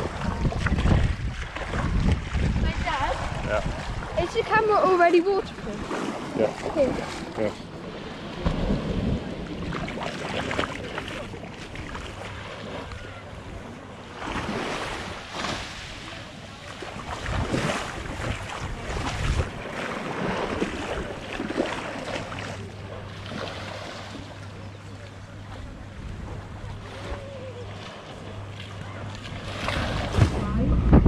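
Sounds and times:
wind on microphone: 0.0s - 4.8s, 17.1s - 21.2s, 29.6s - 31.0s
vehicle engine humming: 30.1s - 31.0s.

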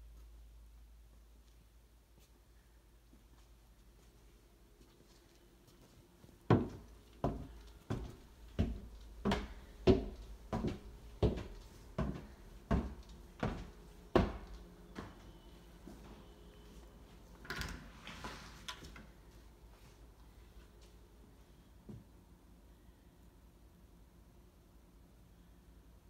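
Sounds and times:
footsteps on wooden stairs: 6.5s - 15.3s.

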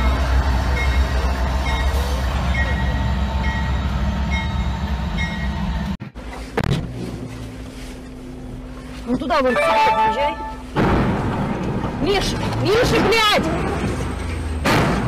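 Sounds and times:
diesel locomotive rumbling past: 0.0s - 6.0s, 9.5s - 15.0s
short high tone: 9.5s - 10.7s.

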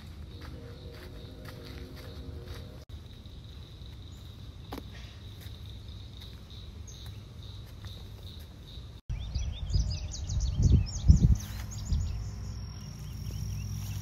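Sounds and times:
high-pitched drone: 0.0s - 2.8s
birds chirping: 5.0s - 14.0s
wind buffeting microphone: 9.1s - 12.3s
low wind rumble: 9.1s - 14.0s.

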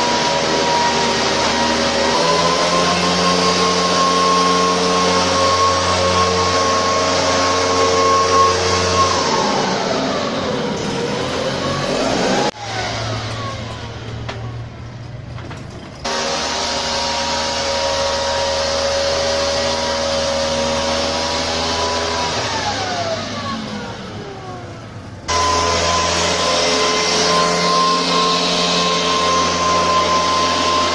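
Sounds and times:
mist-blower engine with blowing hiss: 16.0s - 30.9s.

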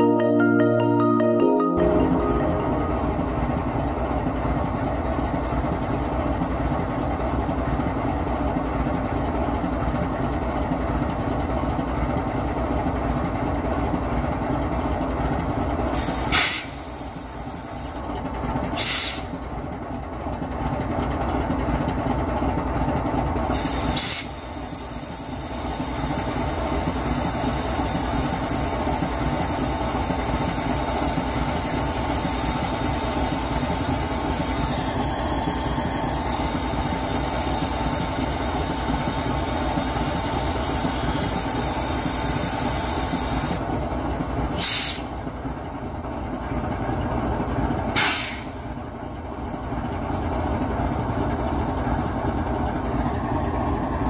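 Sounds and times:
locomotive engine idling: 2.0s - 54.0s
sharp air hisses: 16.0s - 18.0s, 18.8s - 19.3s, 23.6s - 25.0s, 44.6s - 45.1s, 48.0s - 48.6s.

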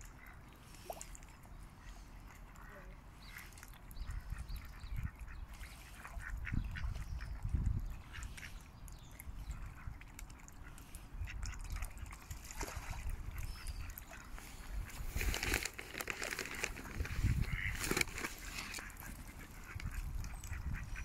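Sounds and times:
ducks quacking: 1.8s - 8.6s, 17.2s - 21.0s.

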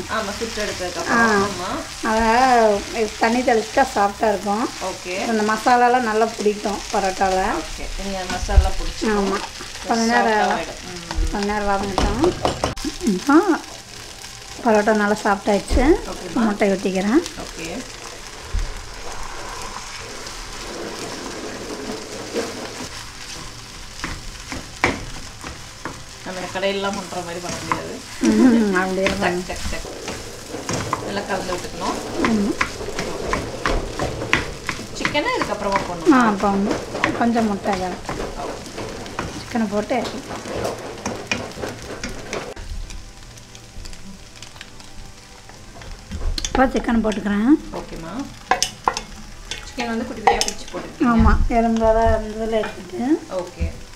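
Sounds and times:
frying sizzle in a pan: 0.0s - 53.9s
wooden spatula stirring: 0.0s - 53.9s.

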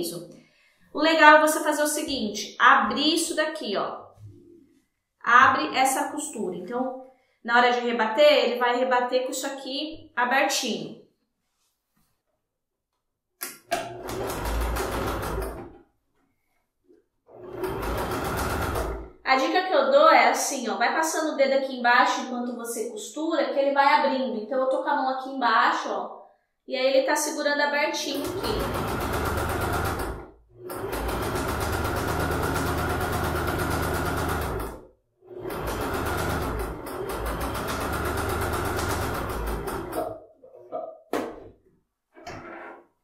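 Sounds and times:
sewing machine running: 13.7s - 15.7s, 17.3s - 19.2s, 28.1s - 40.2s.

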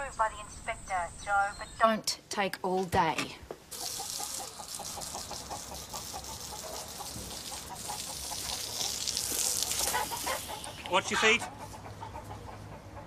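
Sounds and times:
steady hiss: 3.7s - 10.7s
hens clucking: 3.7s - 13.0s.

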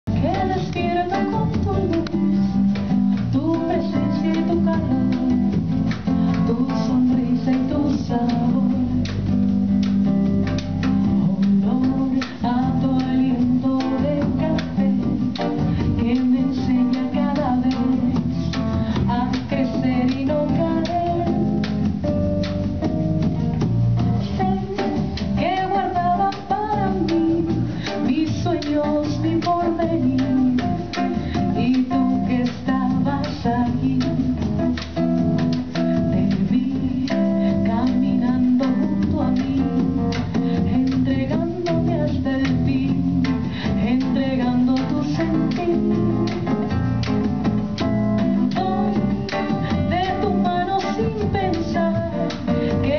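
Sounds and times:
acoustic guitar: 0.0s - 52.9s
percussion: 0.0s - 52.9s
woman singing: 0.1s - 52.9s.

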